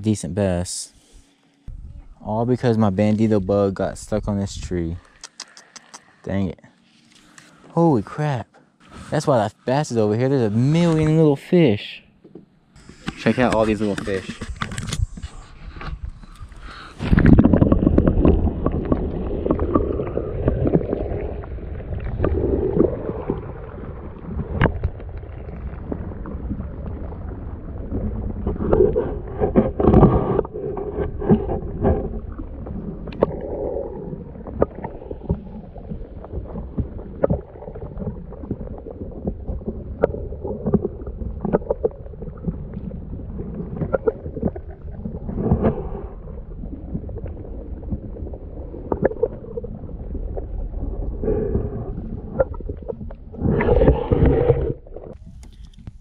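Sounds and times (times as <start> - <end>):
wind rumble on microphone: 1.7 - 2.2, 13.4 - 56.0
water sloshing and gurgling: 12.1 - 56.0
water splashing: 12.8 - 56.0.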